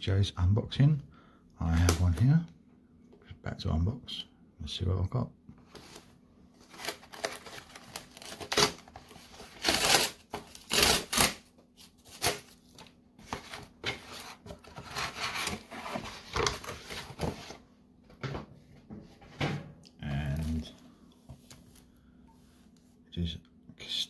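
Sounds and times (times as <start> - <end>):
cardboard box tearing: 6.7 - 12.5, 13.2 - 17.2.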